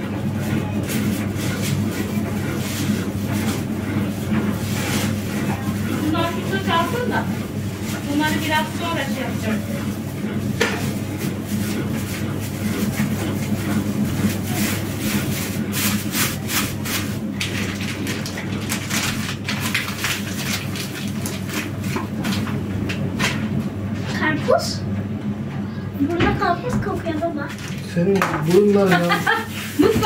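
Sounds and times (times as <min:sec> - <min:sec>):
steady low hum: 0:00.0 - 0:30.0
plastic bag crinkling: 0:14.4 - 0:21.9.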